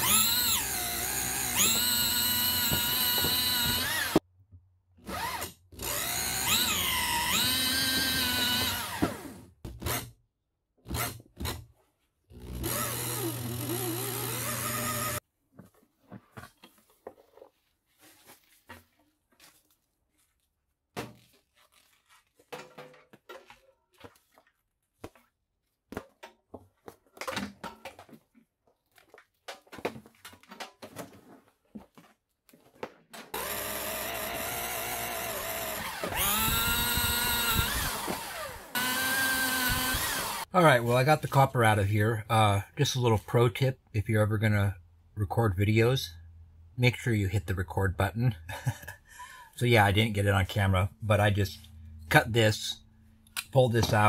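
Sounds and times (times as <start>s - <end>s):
electric drill whining: 0.0s - 4.2s, 5.1s - 10.0s, 12.4s - 15.2s, 33.3s - 40.5s.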